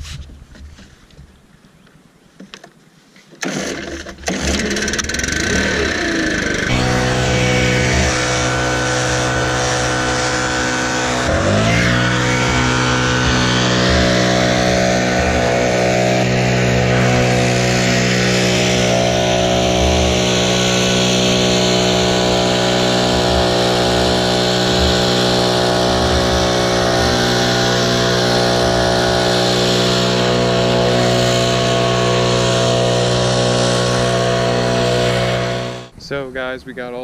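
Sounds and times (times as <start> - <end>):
leaf blower engine drone: 3.4 - 36.0.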